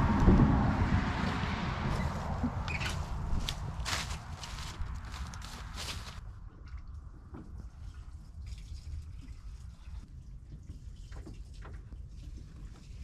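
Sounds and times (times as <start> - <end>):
steady low rumble: 0.0 - 9.0.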